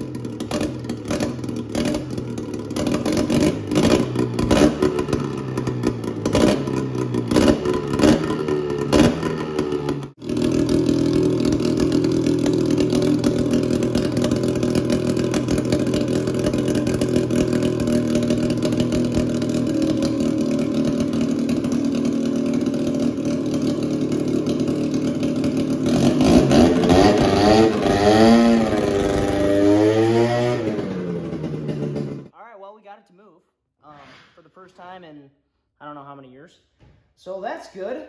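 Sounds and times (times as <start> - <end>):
snowmobile engine idling and revving: 0.0 - 32.3.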